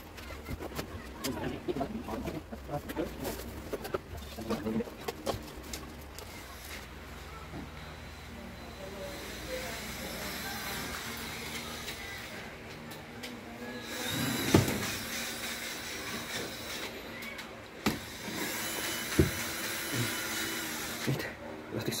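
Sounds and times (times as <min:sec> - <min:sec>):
drawer rolling on metal slides: 0:14.0 - 0:15.1.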